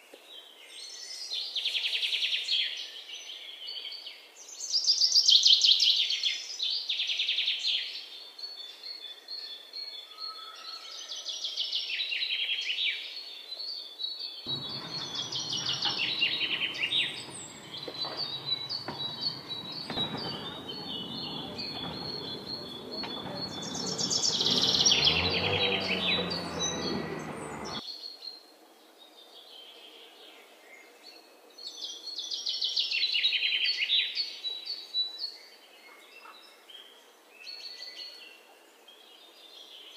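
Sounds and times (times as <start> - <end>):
loud rushing noise: 14.5 - 27.8
songbirds trilling: 14.5 - 27.8.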